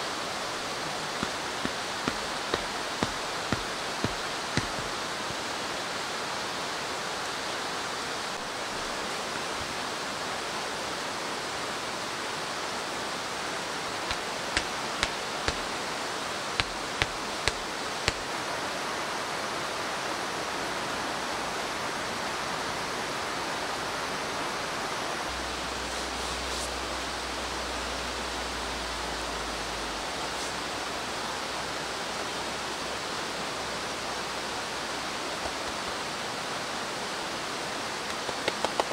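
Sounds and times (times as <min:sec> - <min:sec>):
running water: 0:00.0 - 0:19.8.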